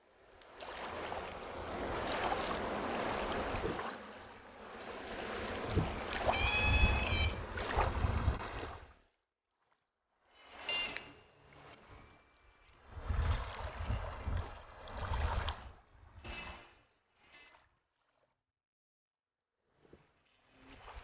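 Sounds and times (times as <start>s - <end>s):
rushing river current: 0.6s - 8.8s
wind rumbling on microphone: 5.0s - 8.9s, 12.8s - 16.3s.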